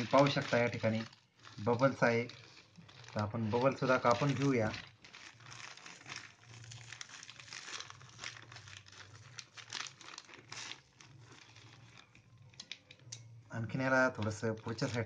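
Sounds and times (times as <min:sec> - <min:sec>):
plastic mailer crinkling and tearing: 0:00.0 - 0:15.0.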